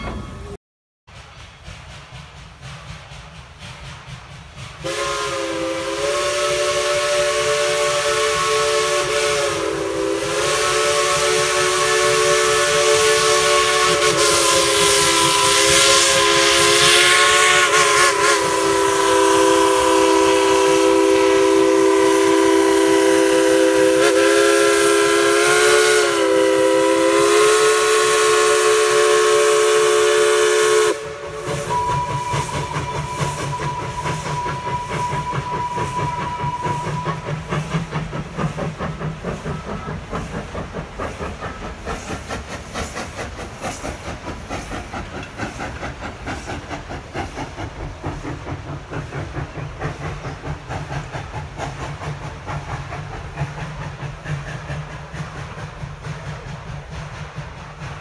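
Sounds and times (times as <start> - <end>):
train running: 0.0 - 58.0
steam locomotive whistle blast: 4.8 - 38.2.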